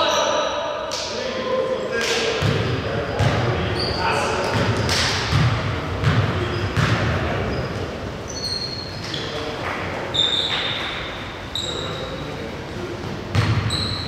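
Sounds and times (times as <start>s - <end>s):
basketball bouncing on gym floor: 2.4s - 3.6s, 4.4s - 7.6s, 13.3s - 14.0s
sneaker squeaks: 2.6s - 4.7s, 6.0s - 12.4s, 13.3s - 14.0s.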